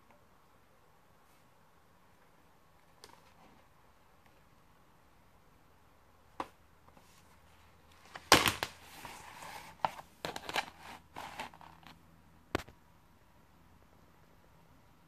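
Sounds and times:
book rustling and scraping: 6.9s - 12.0s.

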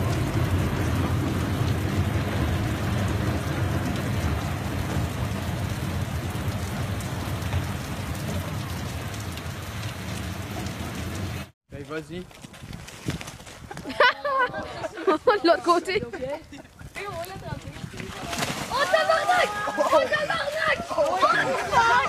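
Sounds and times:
heavy rain pouring on street: 0.0s - 11.5s.

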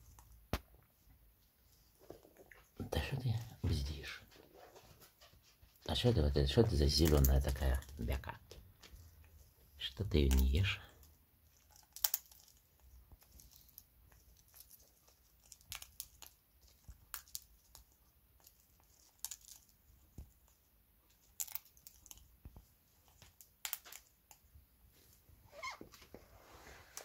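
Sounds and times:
parrot cracking seeds: 6.9s - 8.2s, 9.9s - 22.3s, 23.0s - 24.4s.

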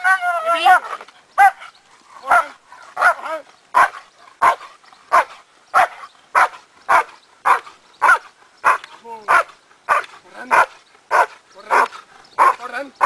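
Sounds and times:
dog barking: 0.7s - 12.6s.

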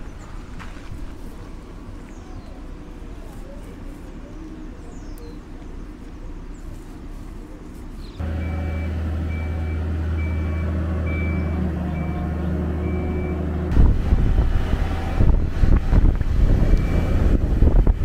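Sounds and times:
engine running: 0.0s - 18.0s
warning alarm beeps: 8.2s - 13.5s, 16.8s - 17.2s
wind rumble on microphone: 13.7s - 18.0s.

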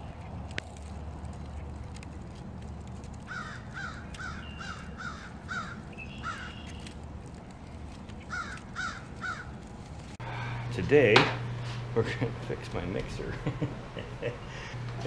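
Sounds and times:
crow cawing: 3.3s - 6.8s, 8.3s - 9.6s.

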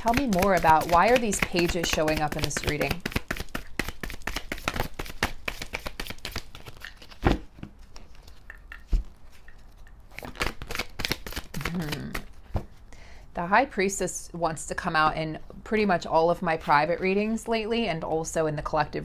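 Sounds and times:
cards being shuffled: 0.0s - 12.8s.

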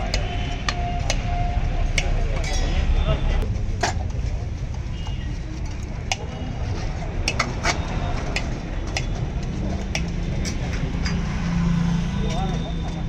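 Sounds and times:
street traffic rumble: 0.0s - 13.0s
steel utensils clinking on pot: 2.0s - 2.9s.

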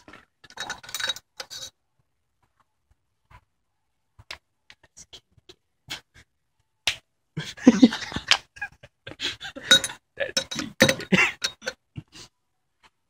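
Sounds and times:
people laughing: 7.4s - 10.4s.

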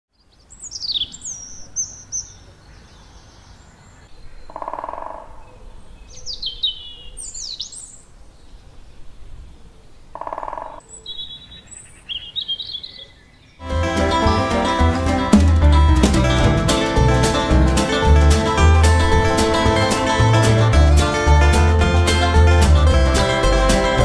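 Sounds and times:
songbirds singing: 0.1s - 13.7s.

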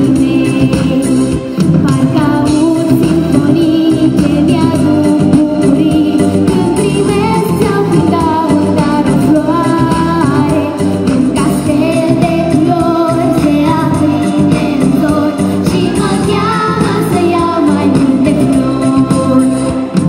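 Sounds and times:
girl singing into microphone: 0.0s - 20.0s
pop backing music: 0.0s - 20.0s.

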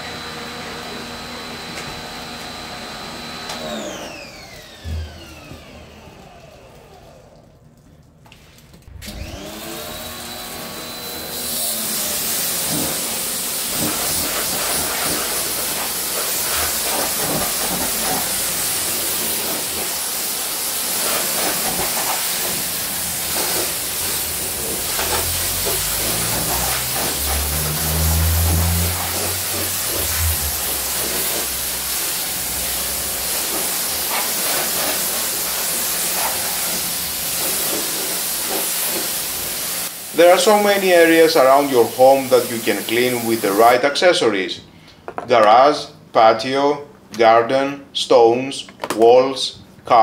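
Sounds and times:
pressure washer motor whining: 0.0s - 7.4s, 8.9s - 43.7s
high-pressure water jet hissing: 9.1s - 43.8s.

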